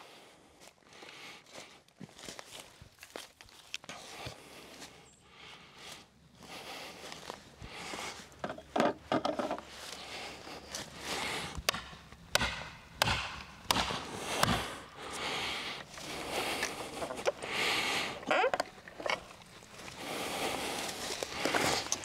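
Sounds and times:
rustling in brush and leaves: 0:09.6 - 0:12.2, 0:14.0 - 0:22.0
sharp woody knocks: 0:11.6 - 0:14.6.

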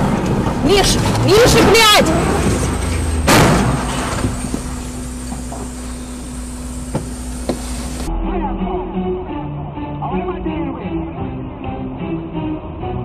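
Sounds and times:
train crashing into truck: 0:01.4 - 0:04.9
steady low rumble: 0:02.0 - 0:11.7.

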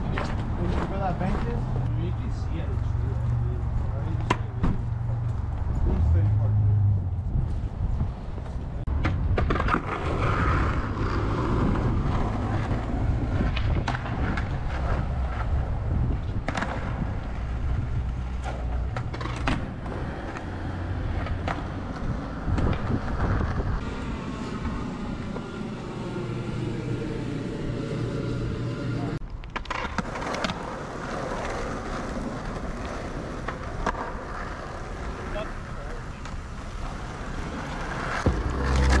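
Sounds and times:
skateboard wheels rolling on asphalt: 0:00.0 - 0:39.0
skateboards popping and landing: 0:07.8 - 0:26.3, 0:29.2 - 0:39.0.

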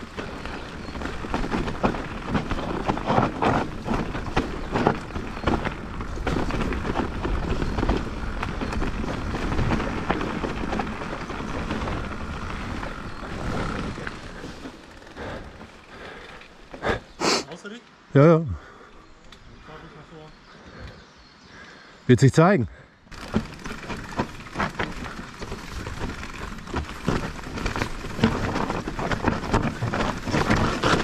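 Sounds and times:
bike rattling and knocking: 0:00.0 - 0:16.9, 0:23.1 - 0:31.0
bike tyre noise on trail: 0:00.0 - 0:31.0.

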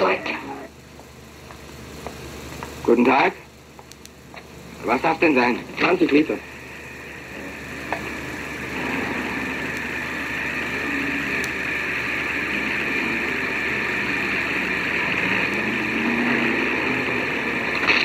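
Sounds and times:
petrol pump running: 0:00.0 - 0:18.0
fuel hissing through nozzle: 0:04.0 - 0:18.0.

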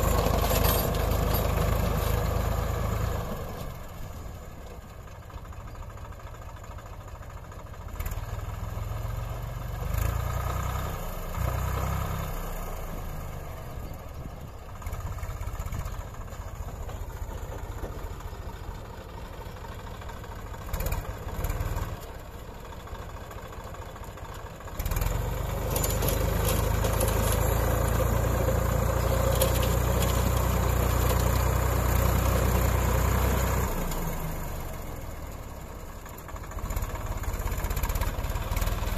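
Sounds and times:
tractor diesel engine running: 0:00.0 - 0:38.9.

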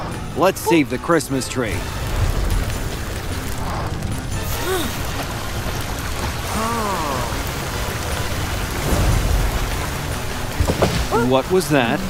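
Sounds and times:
background music: 0:00.0 - 0:12.0
cartoon vocal sounds: 0:00.6 - 0:00.9
water jet hissing: 0:01.8 - 0:12.0.

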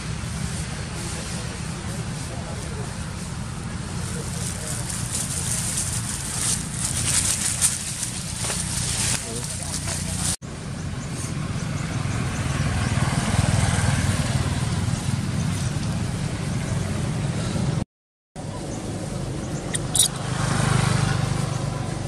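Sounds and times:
motorbikes passing: 0:00.0 - 0:17.8, 0:18.4 - 0:22.0
short high chirp: 0:19.7 - 0:20.2.

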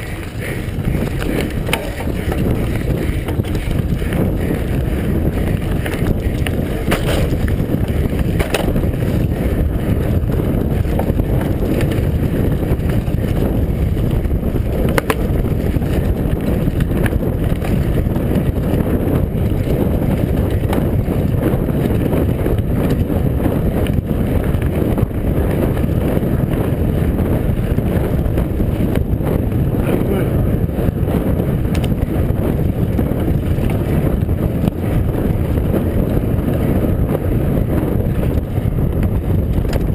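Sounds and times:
tyres rolling over dirt: 0:00.0 - 0:23.2
wind buffeting microphone: 0:00.0 - 0:39.9
bike knocking over bumps: 0:00.1 - 0:23.1.

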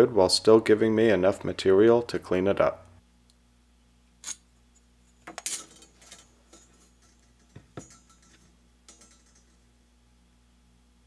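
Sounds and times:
steel clinking and knocking: 0:05.3 - 0:09.7.

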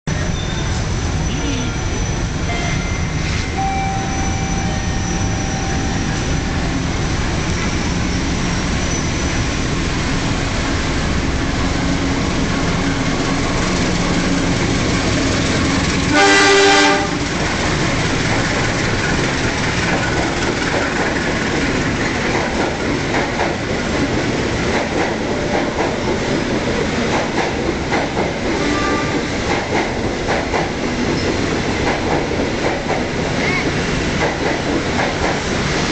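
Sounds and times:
train rumble: 0:00.1 - 0:35.9
wheels clacking over rail joints: 0:12.8 - 0:35.7
train horn blast: 0:16.1 - 0:17.4, 0:28.6 - 0:29.3.

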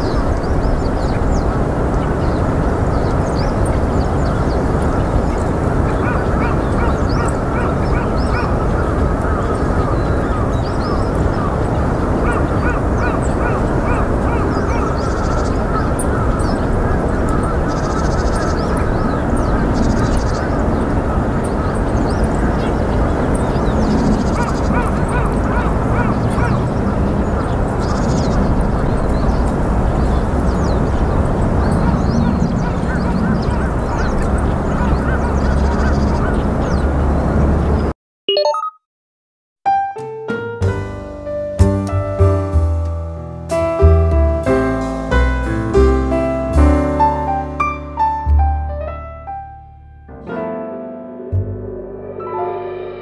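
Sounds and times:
birds calling: 0:00.0 - 0:37.9
rapid high bird trills: 0:05.9 - 0:26.6
steady low rumble: 0:51.4 - 0:53.0.

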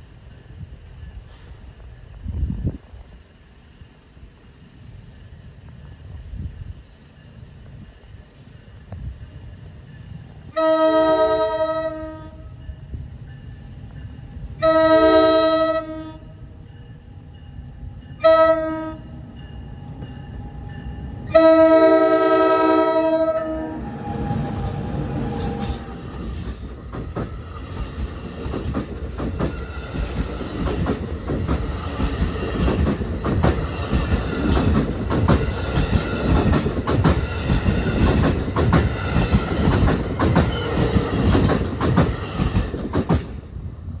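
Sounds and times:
locomotive horn chord: 0:10.6 - 0:12.5, 0:14.6 - 0:16.4, 0:18.2 - 0:19.1, 0:21.3 - 0:23.9
train wheels clicking over rail joints: 0:24.1 - 0:43.8.

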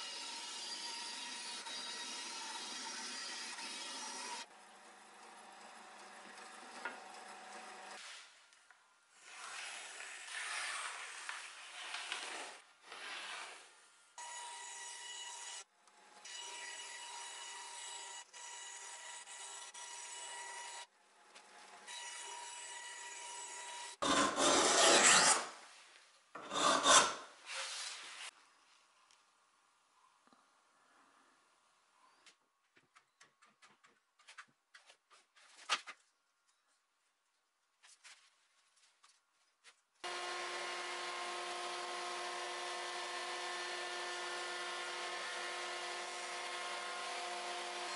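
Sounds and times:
bandsaw cutting wood: 0:23.6 - 0:25.5, 0:26.4 - 0:27.2, 0:40.0 - 0:47.9
hand tool rasping wood: 0:24.0 - 0:25.5, 0:26.4 - 0:27.2.

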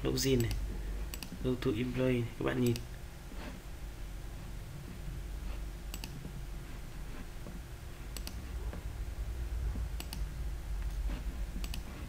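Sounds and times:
steady low hum: 0:00.0 - 0:12.0
computer mouse clicks: 0:00.3 - 0:01.4, 0:02.6 - 0:02.9, 0:05.9 - 0:06.3, 0:08.1 - 0:08.4, 0:09.8 - 0:11.0, 0:11.6 - 0:12.0.

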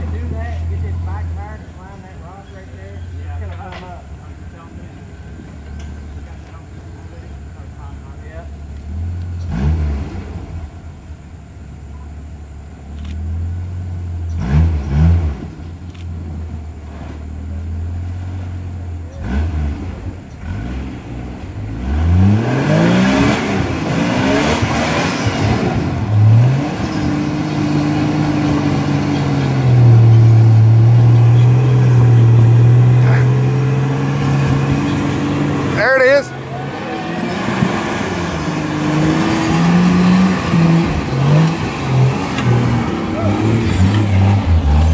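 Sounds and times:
engine idling and revving: 0:00.0 - 0:44.9.

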